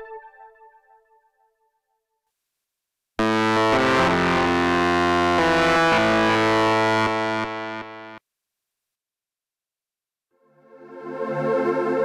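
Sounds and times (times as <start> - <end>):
distorted synthesizer guitar chord: 3.2 - 8.2.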